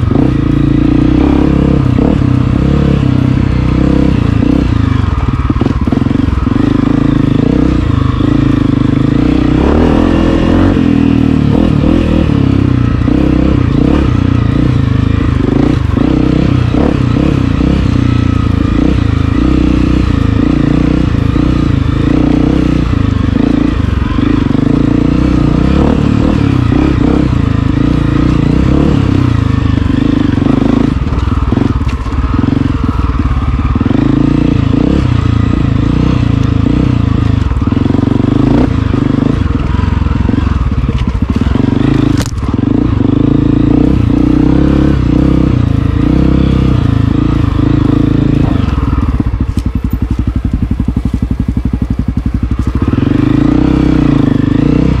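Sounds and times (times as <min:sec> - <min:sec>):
motorcycle engine revving: 0:00.0 - 0:55.0
sharp crack: 0:42.1 - 0:42.5.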